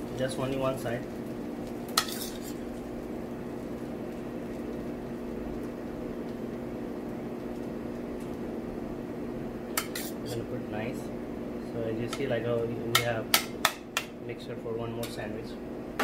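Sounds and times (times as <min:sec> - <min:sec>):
steady low hum: 0:00.0 - 0:16.0
spoon scraping plate: 0:02.0 - 0:02.6, 0:09.8 - 0:10.4.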